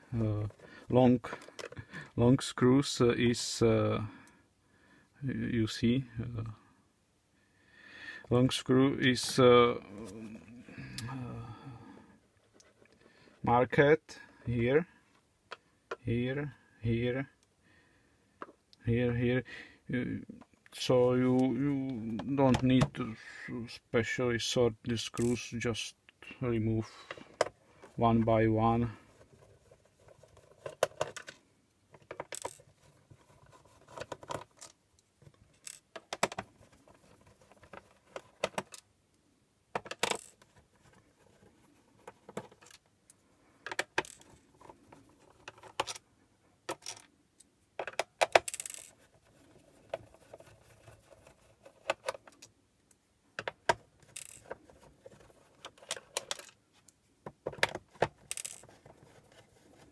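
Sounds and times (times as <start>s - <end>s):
metal screws clinking on wood: 35.5s - 36.4s, 47.8s - 48.9s, 53.4s - 54.6s, 57.6s - 58.8s.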